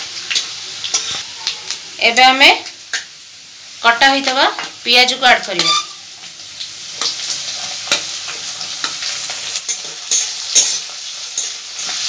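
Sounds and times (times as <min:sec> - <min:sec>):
onions sizzling in hot oil: 0:00.0 - 0:12.0
spatula scraping a pan: 0:00.9 - 0:01.3, 0:05.6 - 0:06.3, 0:06.9 - 0:12.0.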